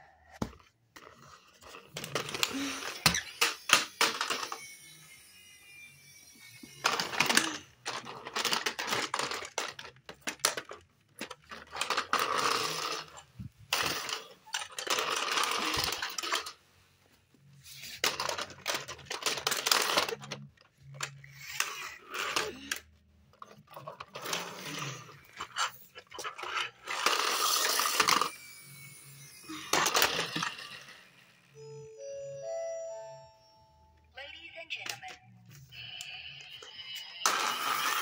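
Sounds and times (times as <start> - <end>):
plastic toys clattering on tile: 1.0 - 4.8, 6.6 - 16.6, 17.7 - 31.1.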